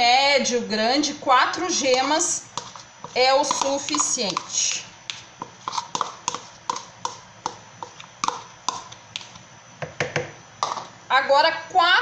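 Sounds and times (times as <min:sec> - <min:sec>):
taps against mixer bowl: 0:08.2 - 0:10.8.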